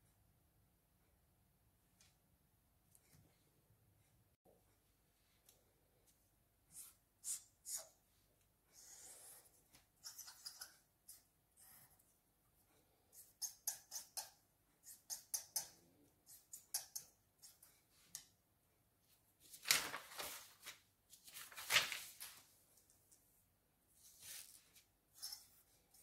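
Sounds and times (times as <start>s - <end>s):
paper sheets swishing: 19.4s - 22.5s.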